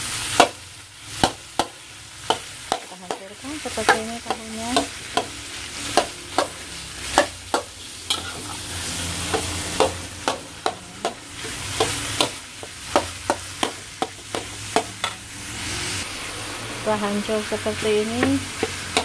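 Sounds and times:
oil sizzling: 0.0s - 19.0s
metal spatula knocking on a wok: 1.2s - 5.3s, 5.9s - 6.6s, 7.2s - 8.4s, 9.3s - 15.2s, 18.1s - 19.0s.

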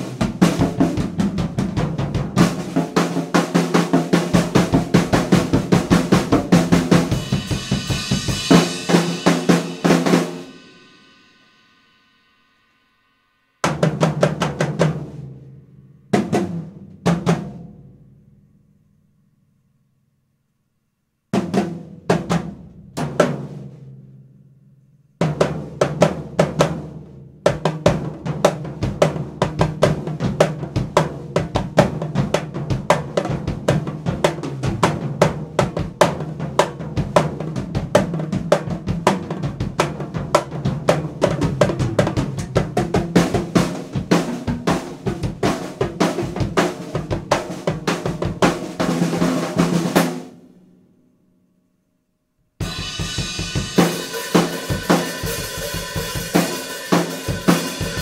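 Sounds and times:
drum kit played fast: 0.0s - 12.5s, 13.6s - 15.4s, 16.1s - 17.8s, 21.4s - 23.7s, 25.2s - 50.4s, 52.6s - 58.0s
cymbal wash: 7.1s - 13.6s.

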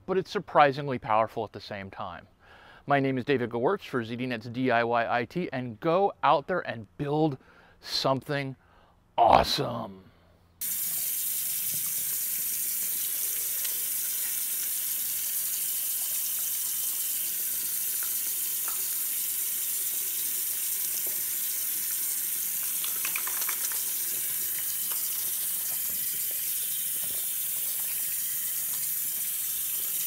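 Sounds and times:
faucet running into sink: 10.6s - 30.0s
wet hands rubbing: 22.4s - 30.0s.

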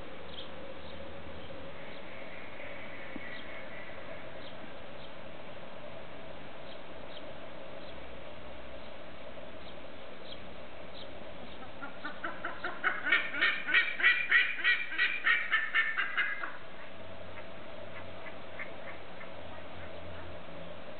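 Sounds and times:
bird giving harsh calls: 11.8s - 16.6s.

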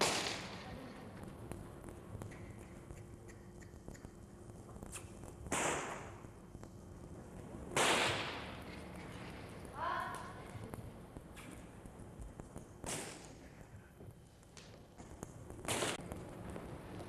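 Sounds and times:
whip cracks with echo: 0.0s - 0.6s, 4.9s - 6.3s, 7.7s - 8.6s, 12.8s - 13.5s, 15.6s - 16.0s.

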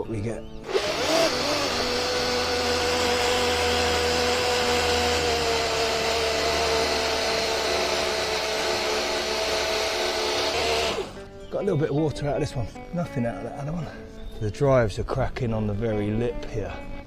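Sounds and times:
electric motors whining: 0.6s - 11.4s.

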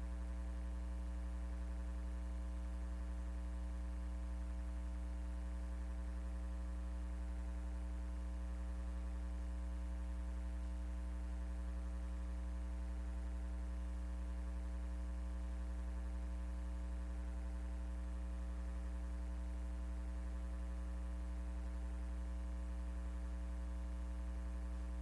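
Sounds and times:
electrical mains hum: 0.0s - 25.0s.

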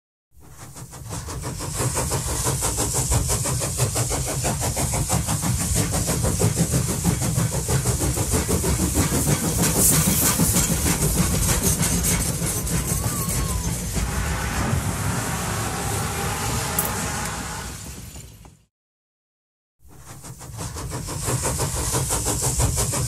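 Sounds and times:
locomotive engine running: 0.4s - 18.6s.

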